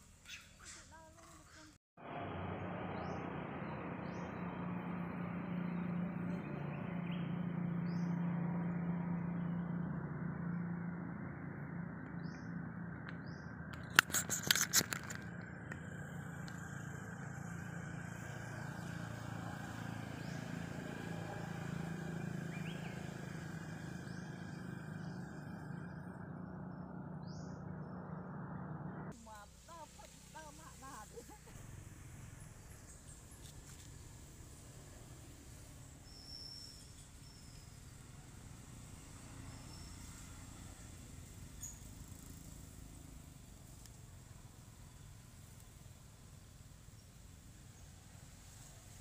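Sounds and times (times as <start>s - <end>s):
bird chirps: 0.2s - 1.7s, 36.0s - 38.0s
engine drone: 2.0s - 49.0s.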